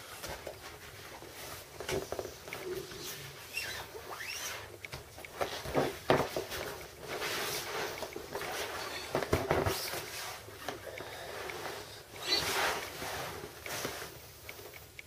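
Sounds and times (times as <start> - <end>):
vinyl pool toys squeaking: 2.6 - 4.8, 12.2 - 12.9.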